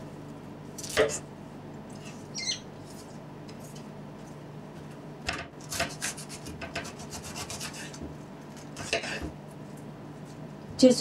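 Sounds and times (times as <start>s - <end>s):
knife cutting cabbage: 5.6s - 9.3s.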